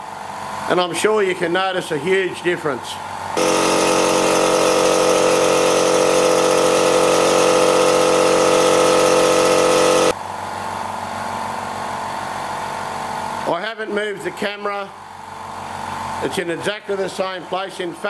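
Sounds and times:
quiet air compressor running: 0.0 - 16.4
loud air compressor humming: 3.0 - 10.5.

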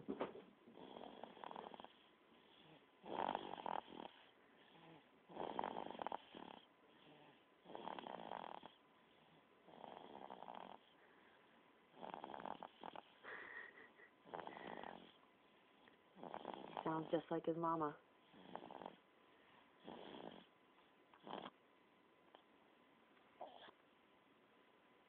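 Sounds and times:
baby snoring: 0.7 - 11.0, 11.9 - 17.2, 18.2 - 19.1, 19.8 - 21.6, 23.4 - 23.8
baby breathing quietly: 13.0 - 16.0.

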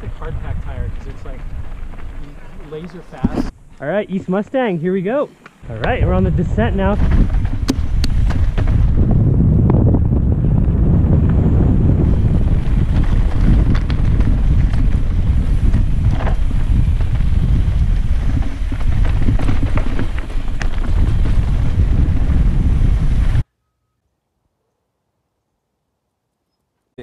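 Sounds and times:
wind buffeting microphone: 0.0 - 4.2, 5.6 - 23.4
clicks and knocks from bike ride: 7.0 - 9.0, 12.9 - 17.4, 18.0 - 21.4.

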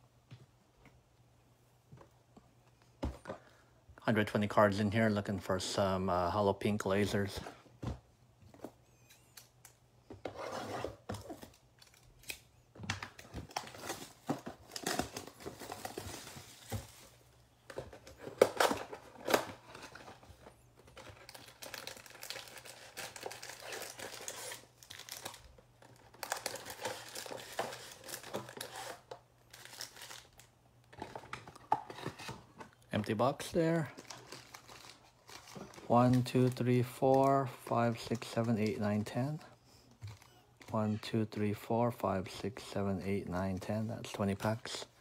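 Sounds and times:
foil wrappers crinkling: 21.0 - 32.1, 33.7 - 36.3.

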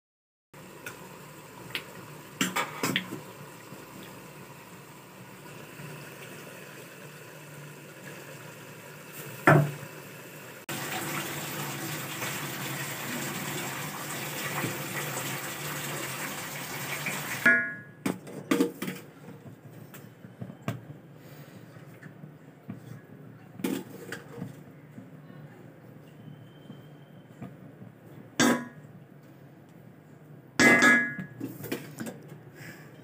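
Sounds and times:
curry bubbling and hissing in pot: 0.6 - 17.4
knocks and clinks on metal pot: 30.6 - 31.4.

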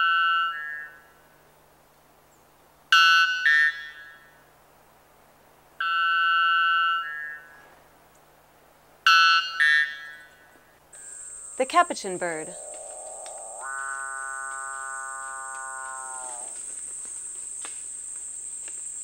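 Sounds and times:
bellbird calling: 9.1 - 16.7.

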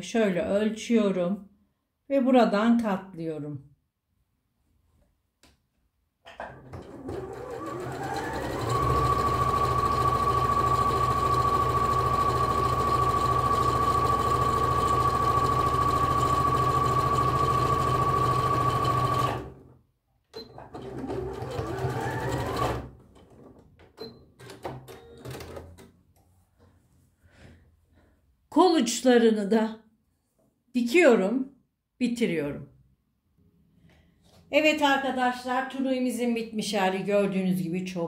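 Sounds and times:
sewing machine motor whining: 6.9 - 19.6.

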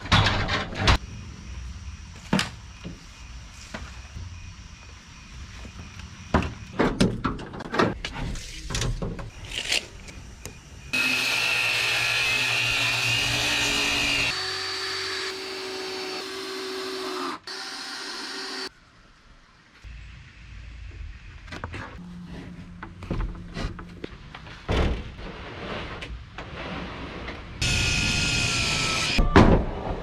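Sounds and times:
cordless drill whining: 27.6 - 29.2.

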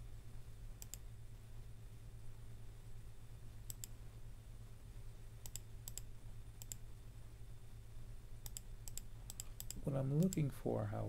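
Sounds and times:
faint low hum: 0.0 - 11.0
computer mouse clicking: 0.8 - 1.1, 3.7 - 4.0, 5.4 - 6.9, 8.4 - 10.5.

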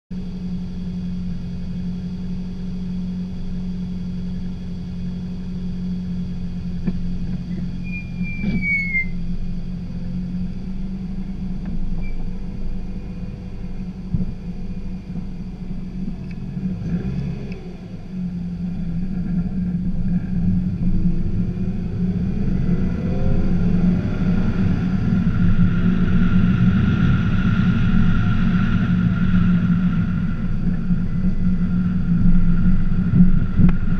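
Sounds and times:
car engine humming and pulling away: 0.1 - 33.9
brief high squeak: 7.5 - 9.2, 12.0 - 12.3.

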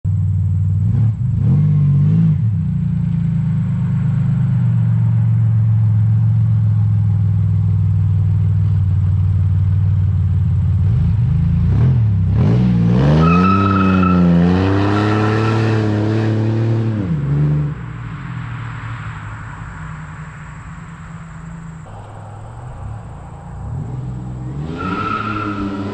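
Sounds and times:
car engine idling and revving: 0.0 - 25.9
supercharger whine: 17.7 - 25.9.

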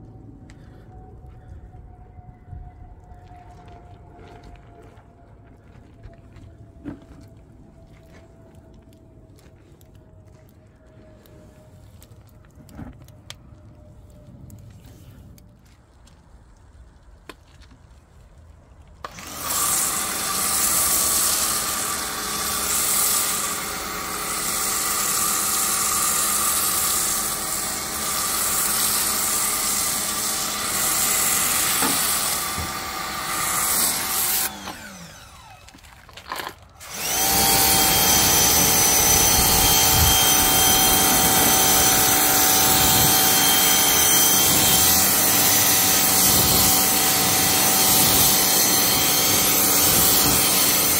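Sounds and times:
pressure washer spraying water: 19.2 - 35.2, 36.8 - 50.9.

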